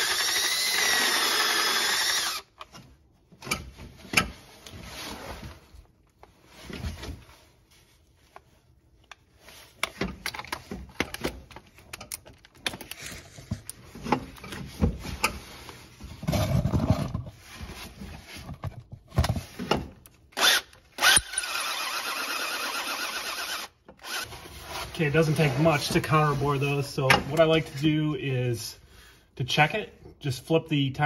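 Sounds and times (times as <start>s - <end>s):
cordless drill running: 0.0s - 2.5s, 20.4s - 24.3s
tool handling clicks and knocks: 9.0s - 15.4s.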